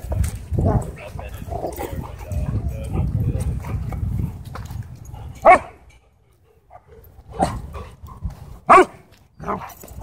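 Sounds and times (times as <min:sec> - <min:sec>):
dogs barking: 0:05.4 - 0:05.8, 0:08.6 - 0:09.7.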